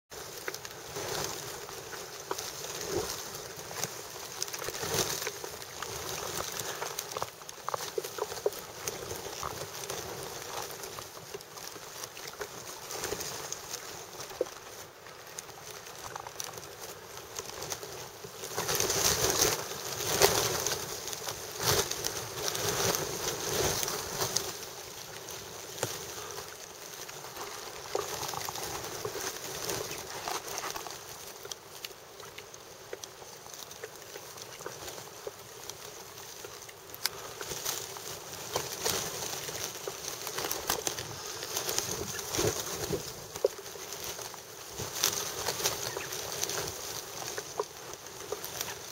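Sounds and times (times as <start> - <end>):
waterbirds splashing: 21.3 - 48.9.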